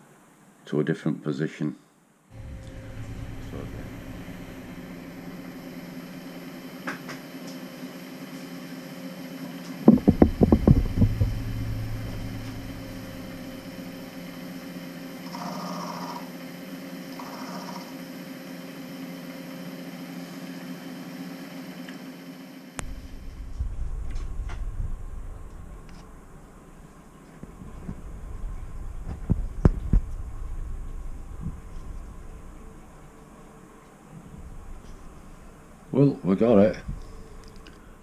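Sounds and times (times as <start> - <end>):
milling machine motor hum: 2.4 - 35.9
loud rapid clatter: 9.9 - 14.3.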